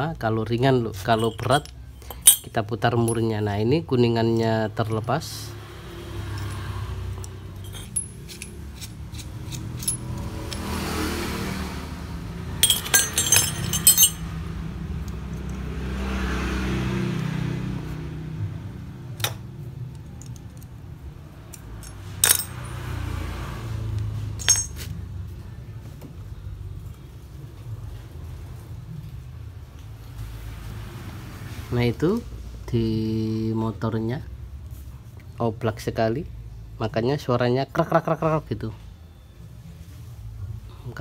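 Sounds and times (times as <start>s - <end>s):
metal tools clinking: 1.0s - 3.5s, 6.3s - 11.0s, 12.6s - 14.4s, 21.5s - 22.9s, 24.4s - 24.9s.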